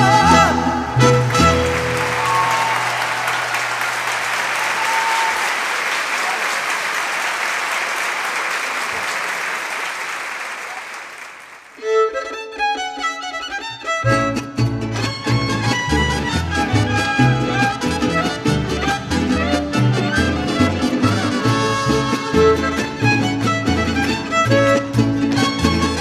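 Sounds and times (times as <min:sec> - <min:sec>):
violins and guitars playing: 0:00.0 - 0:02.7, 0:11.8 - 0:26.0
audience applause: 0:01.0 - 0:11.8.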